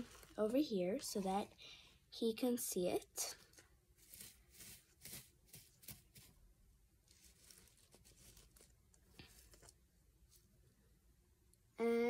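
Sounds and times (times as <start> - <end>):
rustling of wood-shaving bedding: 0.0 - 1.4, 4.0 - 6.4, 7.1 - 9.7.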